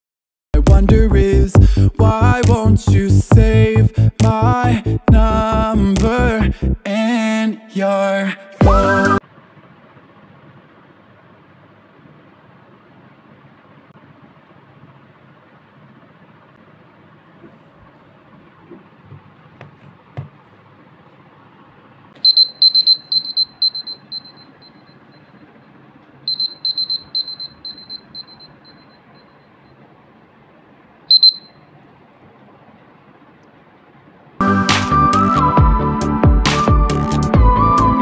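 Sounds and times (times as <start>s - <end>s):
phone timer alarm beeping: 22.2s - 25.5s, 26.3s - 29.8s, 31.1s - 31.6s.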